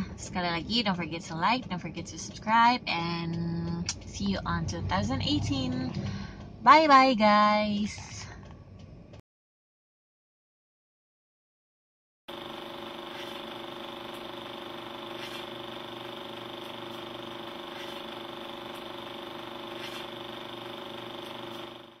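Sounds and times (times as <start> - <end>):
film projector whirring: 12.3 - 22.0.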